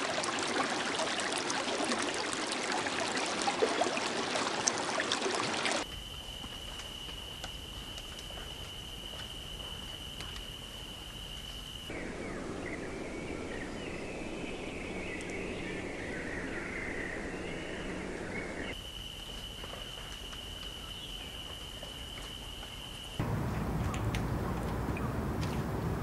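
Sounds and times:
high insect trill: 5.8 - 13.2
birds twittering: 11.9 - 18.8, 23.2 - 26.0
rushing background noise: 23.2 - 26.0.

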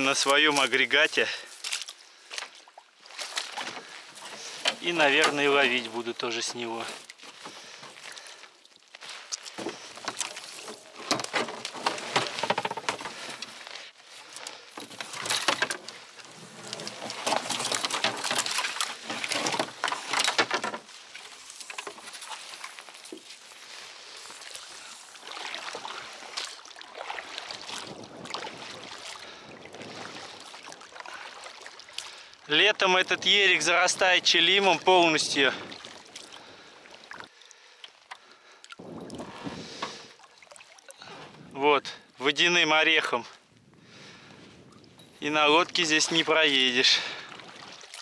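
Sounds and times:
boat splashing and scraping: 0.0 - 48.0
wash of water: 23.6 - 32.6.

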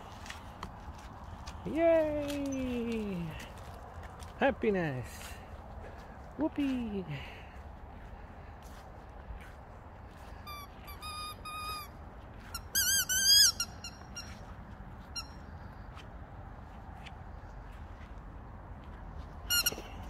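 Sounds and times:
squeaky dog toys: 10.4 - 14.5, 15.1 - 15.5, 19.4 - 20.0.

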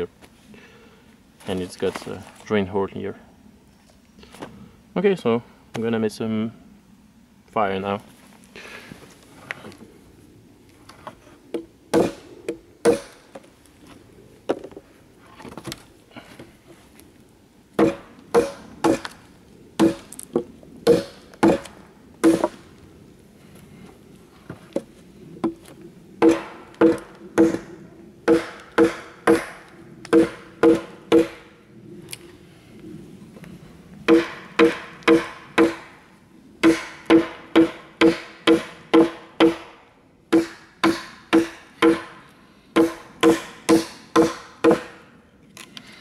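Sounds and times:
hatchet chopping branch: 11.9 - 12.2, 12.8 - 13.3, 17.8 - 19.2, 19.8 - 20.1, 20.9 - 22.6, 26.2 - 27.7, 28.3 - 31.4, 34.1 - 35.9, 36.6 - 42.2, 42.8 - 45.0.

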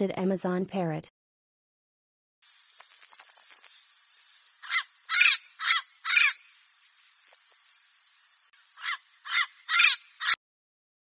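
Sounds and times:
parrot squawking: 4.6 - 6.5, 8.8 - 10.4.

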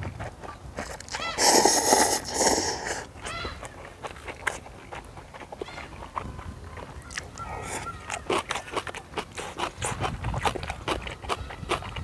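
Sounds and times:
wet chewing smacks: 0.1 - 12.0
slurping noodles: 0.8 - 3.1.

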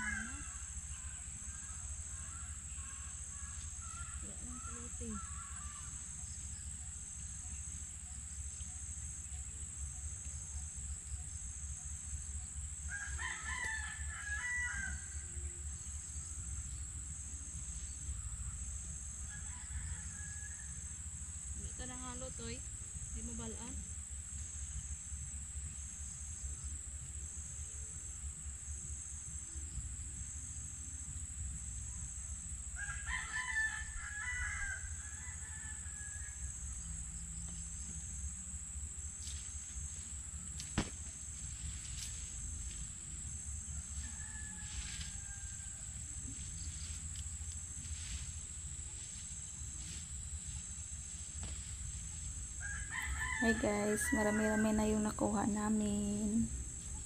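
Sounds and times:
rooster crowing: 0.0 - 2.4, 12.9 - 15.4, 19.3 - 21.0, 32.8 - 36.7, 43.7 - 46.3, 52.6 - 55.1
steady low rumble: 36.4 - 44.0, 45.4 - 52.6, 54.6 - 57.0
sharp knock: 40.8 - 41.0.

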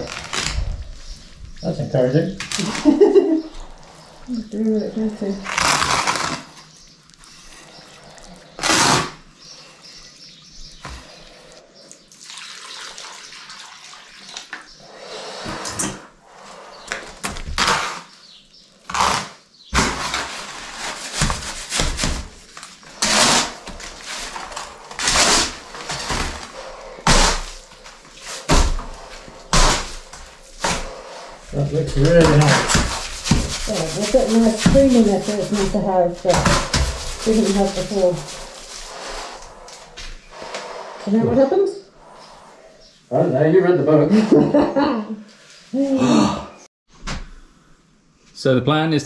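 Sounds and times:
trowel scraping and slapping wet mortar: 18.9 - 40.2.

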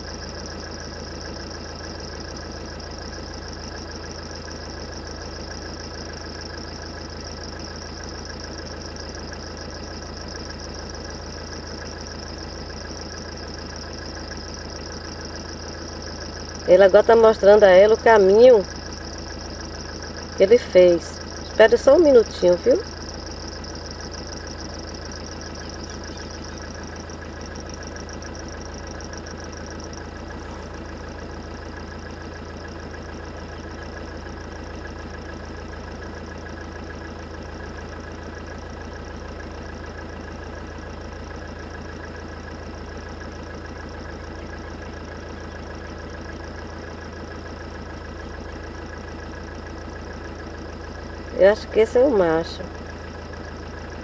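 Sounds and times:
faint high steady tones: 0.0 - 32.6, 51.2 - 54.0
car engine idling: 0.0 - 54.0.

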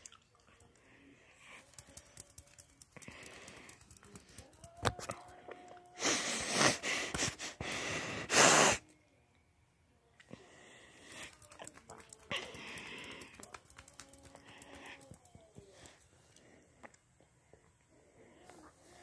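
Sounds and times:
clicks and handling noise: 1.6 - 5.7.

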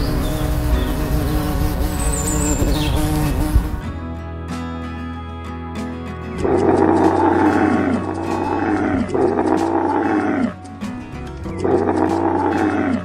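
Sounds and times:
camel bellowing: 6.4 - 13.0.

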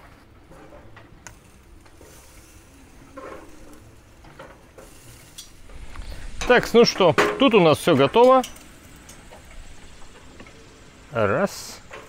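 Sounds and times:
metal tongs clicking on grill grate: 1.2 - 2.3, 3.7 - 5.6, 6.4 - 9.7.

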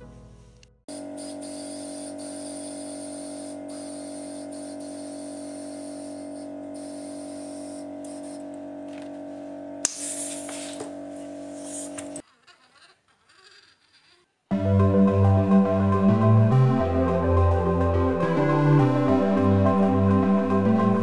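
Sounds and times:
compressed air hissing: 0.9 - 8.4, 9.8 - 10.9, 11.5 - 12.2
steady machine hum: 0.9 - 12.2.

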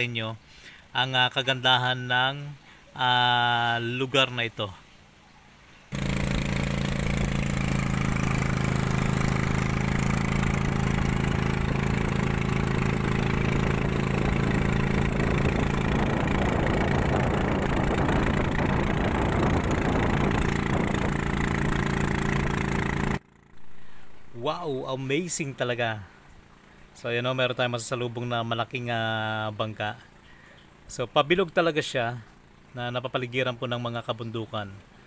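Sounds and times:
boat engine running: 5.9 - 33.6.

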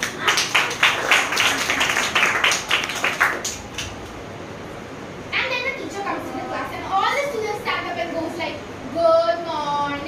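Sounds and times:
children clapping: 0.0 - 4.2.

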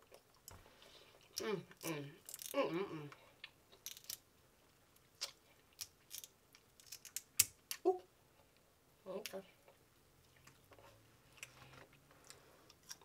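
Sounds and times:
crab shell cracking: 2.3 - 2.6.

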